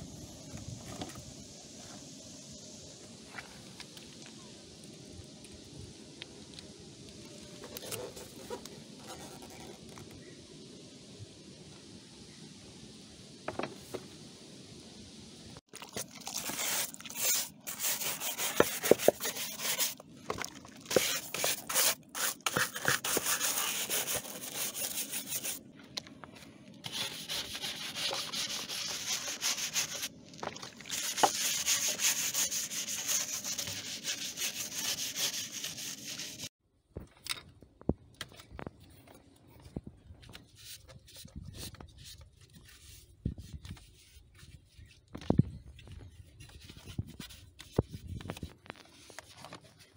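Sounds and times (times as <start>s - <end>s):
scrubber rubbing plastic: 16.0s - 25.6s, 26.8s - 30.1s, 30.8s - 36.5s.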